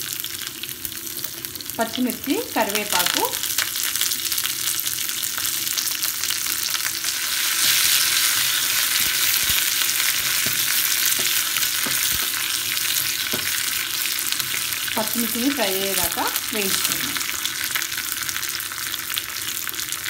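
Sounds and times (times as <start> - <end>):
chillies sizzling in hot oil: 0.0 - 20.0
wooden spatula stirring: 7.6 - 13.7.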